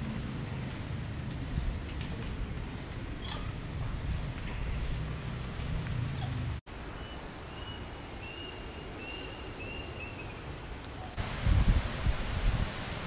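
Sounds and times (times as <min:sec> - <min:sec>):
wind buffeting microphone: 0:00.0 - 0:06.6, 0:11.2 - 0:13.0.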